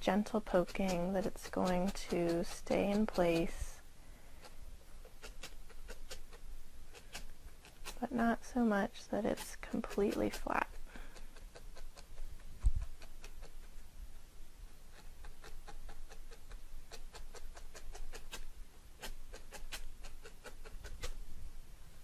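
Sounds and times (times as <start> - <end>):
felting needle tapping into foam: 0.4 - 3.5.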